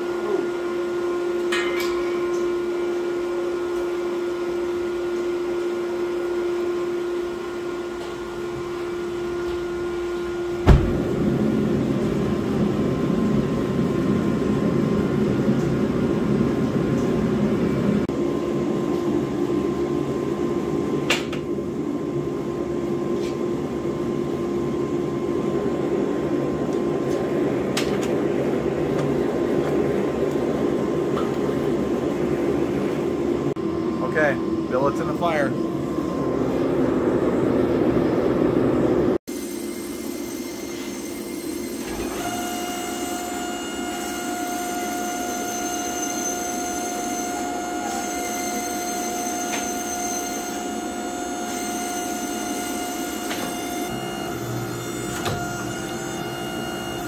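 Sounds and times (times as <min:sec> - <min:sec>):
gas forge burner roaring: 0:00.0 - 0:57.0.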